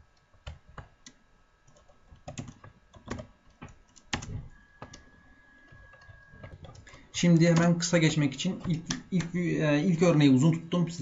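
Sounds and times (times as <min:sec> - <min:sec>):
faint high whine: 0:04.3 - 0:11.0.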